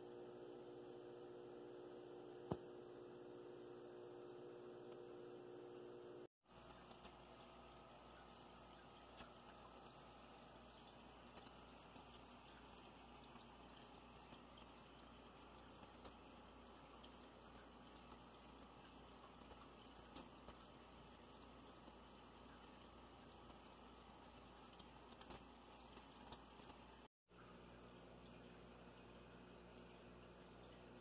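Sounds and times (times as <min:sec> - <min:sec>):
small ticks: 0:06.5 - 0:27.1.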